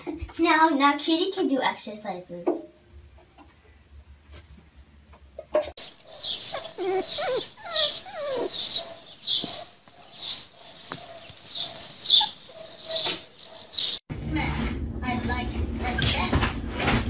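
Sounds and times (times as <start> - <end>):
animal squeals: 6.2 - 9.7.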